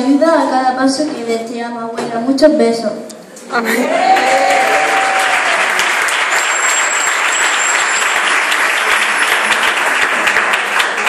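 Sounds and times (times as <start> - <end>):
crowd applauding: 3.7 - 11.0.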